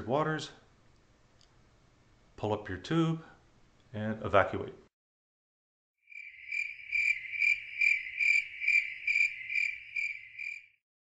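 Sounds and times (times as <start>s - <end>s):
cricket chirping: 6.1s - 10.8s.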